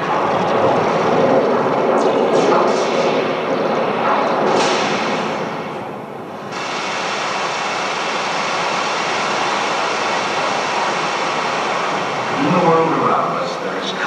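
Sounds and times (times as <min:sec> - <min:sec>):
waterfall roar: 0:06.5 - 0:14.0.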